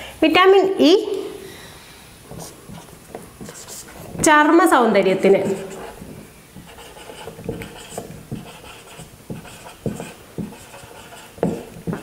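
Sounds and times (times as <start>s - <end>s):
marker squeaking on whiteboard: 2.3s - 4.3s, 5.4s - 12.0s.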